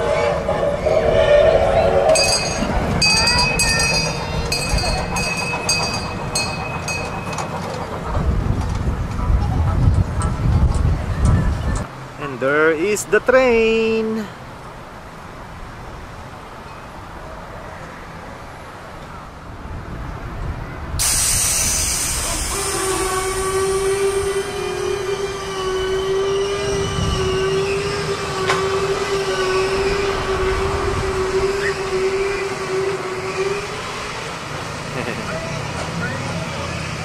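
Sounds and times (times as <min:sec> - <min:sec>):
loud steam hiss: 0:00.0 - 0:04.5, 0:21.0 - 0:37.0
low running rumble: 0:00.0 - 0:07.3
steady whistle tone: 0:00.0 - 0:07.4, 0:21.0 - 0:34.0.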